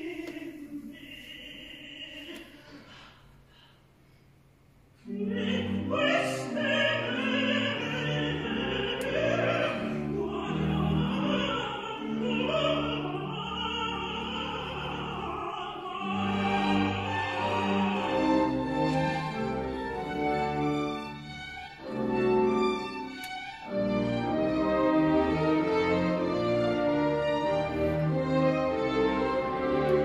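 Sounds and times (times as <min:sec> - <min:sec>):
operatic singing voice: 0:00.0 - 0:03.0, 0:05.0 - 0:19.4
orchestral music: 0:05.1 - 0:30.0.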